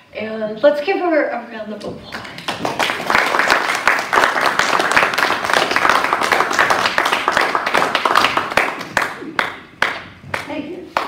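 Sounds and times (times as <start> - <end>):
congregation applauding: 2.2 - 10.4.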